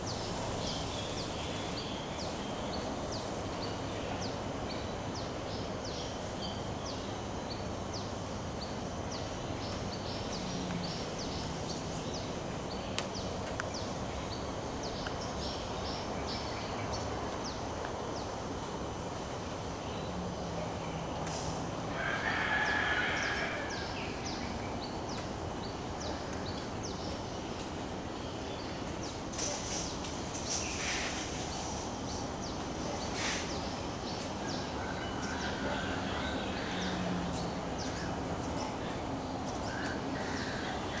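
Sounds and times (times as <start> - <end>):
birds chirping: 0.0 - 18.4.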